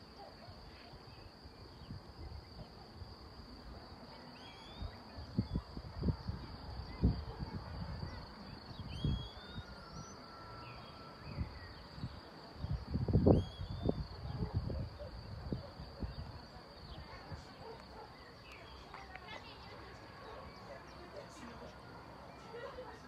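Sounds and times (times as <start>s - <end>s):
bird chirps: 4.3s - 5.6s, 8.7s - 14.1s
wind buffeting microphone: 5.0s - 9.8s, 11.2s - 17.5s.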